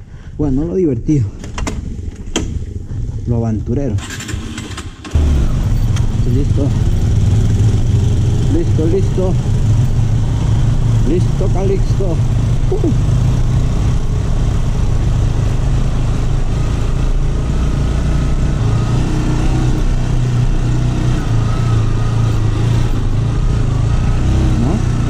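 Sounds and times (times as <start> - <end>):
motorcycle engine running: 5.0 - 25.0.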